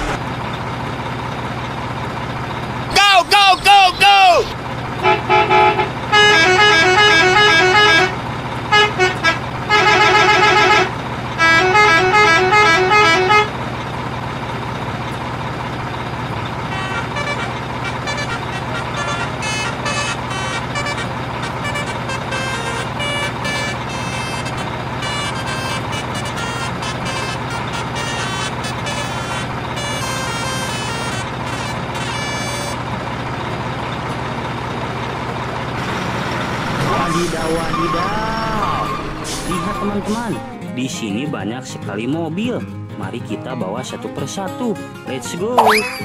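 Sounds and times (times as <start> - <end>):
engine hum: 0.0 - 41.2
musical truck horn toots: 5.0 - 13.6, 16.5 - 33.0, 35.8 - 40.5.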